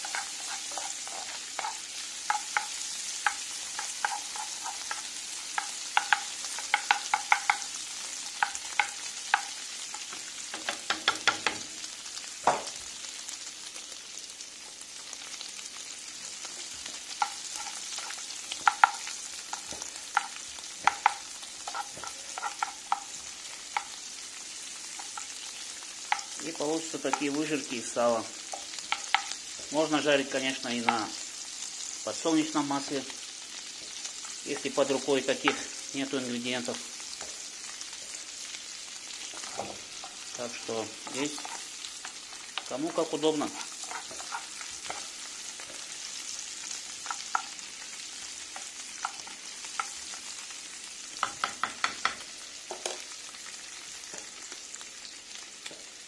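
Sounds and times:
wooden spatula scraping a pan: 0.0 - 7.7, 16.9 - 23.9, 39.2 - 45.9
pork fat sizzling in a pan: 0.0 - 56.0.

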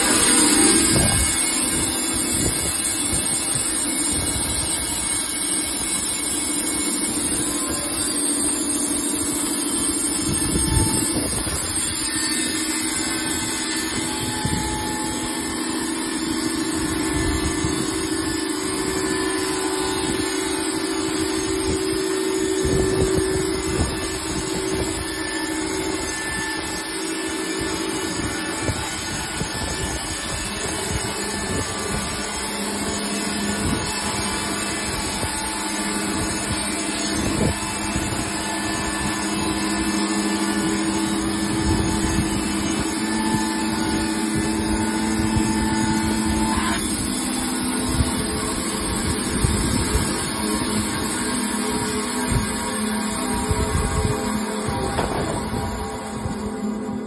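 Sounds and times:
band sawmill running: 0.0 - 57.0
high whine: 0.0 - 57.0.

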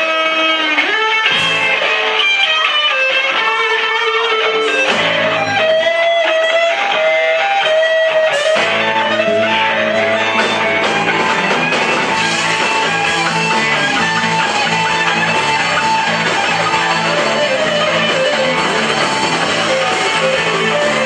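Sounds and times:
electric guitar long melodic notes: 0.0 - 21.0
live rock band playing: 0.0 - 21.0
repeating bass line: 8.6 - 21.0.

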